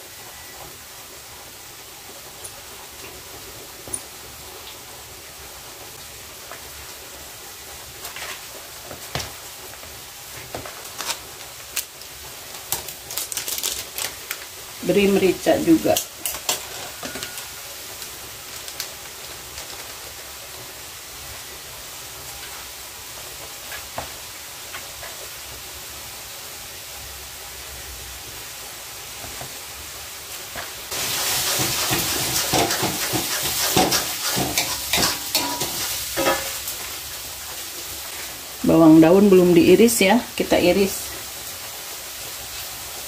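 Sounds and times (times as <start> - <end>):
paste sizzling in oil: 0.1 - 43.0
stirring scrapes and knocks: 31.2 - 36.4.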